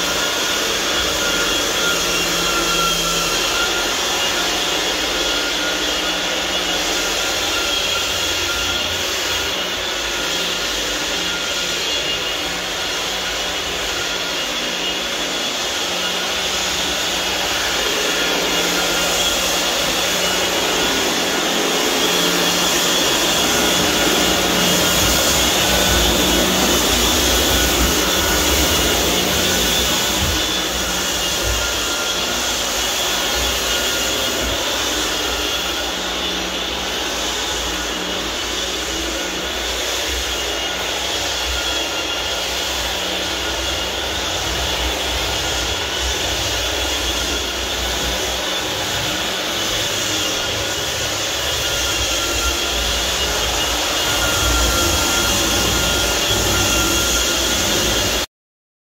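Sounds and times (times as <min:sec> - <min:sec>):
floor sanding machine running: 0:00.0 - 0:58.3.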